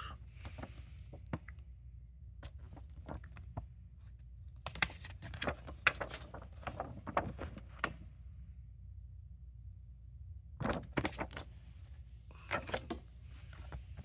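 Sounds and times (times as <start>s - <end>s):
crackling paper rustles: 0.3s - 1.7s, 2.4s - 8.1s, 10.6s - 14.0s.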